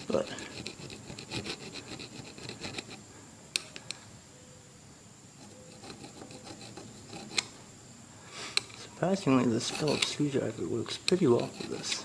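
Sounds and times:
screwdriver scraping rubber grip: 0:00.4 - 0:03.0, 0:05.4 - 0:07.5, 0:09.4 - 0:12.0.

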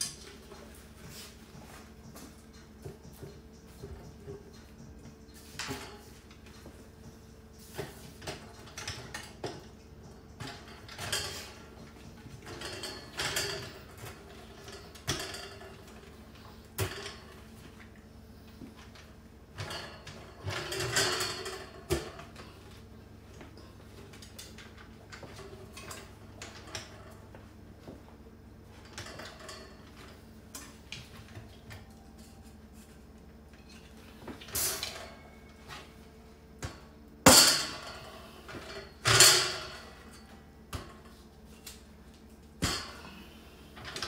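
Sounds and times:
metal cart parts clicking and rattling: 0:07.7 - 0:17.4, 0:18.9 - 0:22.5, 0:36.6 - 0:41.9.

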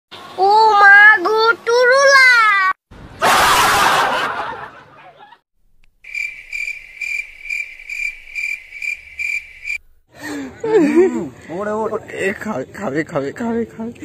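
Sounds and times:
cricket chirping sound effect: 0:06.0 - 0:10.0.

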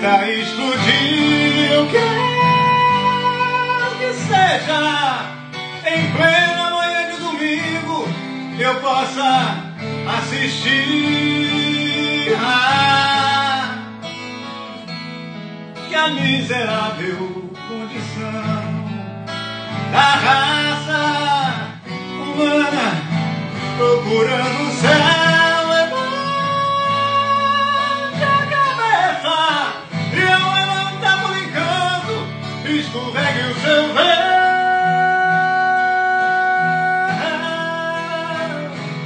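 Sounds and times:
man singing: 0:00.0 - 0:14.2, 0:15.8 - 0:39.0
acoustic guitar accompaniment: 0:00.0 - 0:39.0.

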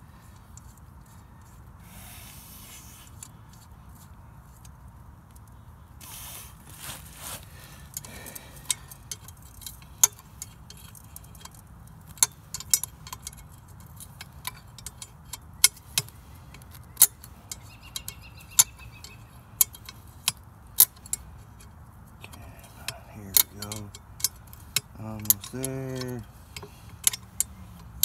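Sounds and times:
wrench clinking against bolts: 0:07.8 - 0:28.0.

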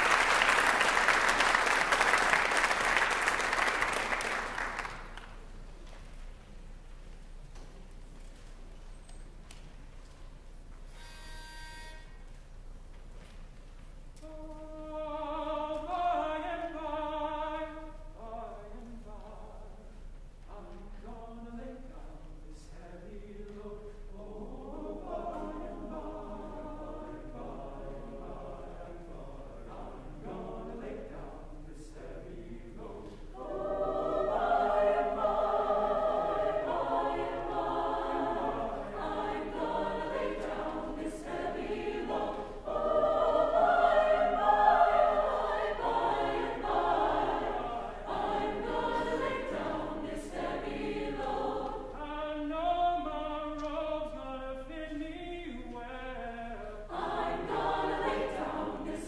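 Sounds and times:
mixed choir singing: 0:14.2 - 0:19.1, 0:21.0 - 0:59.0.

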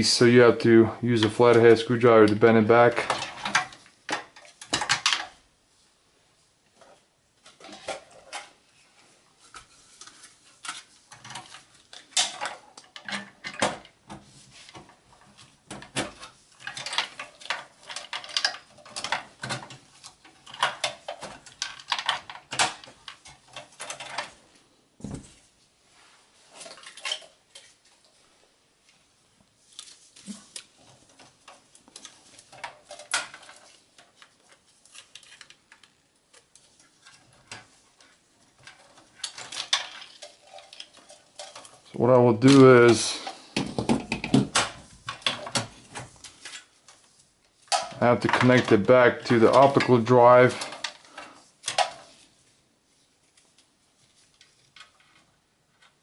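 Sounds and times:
metallic clicks and rattles: 0:10.0 - 0:14.0, 0:14.7 - 0:24.4, 0:30.5 - 0:43.4.

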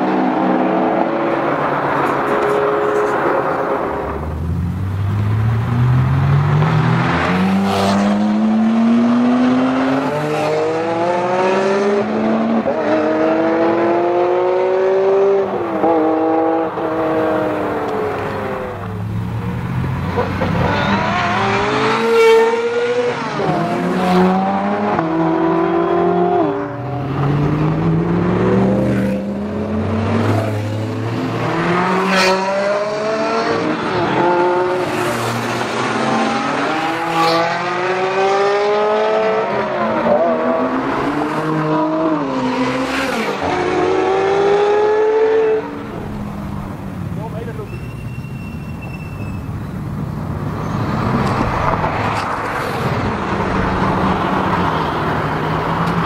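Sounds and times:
sports car engines accelerating: 0:00.0 - 0:47.6.

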